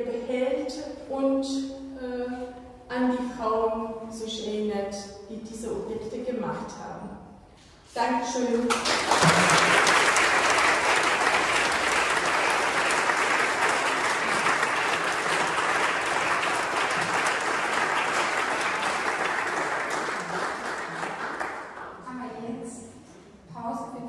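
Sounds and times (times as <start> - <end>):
audience applauding: 8.7 - 22.0.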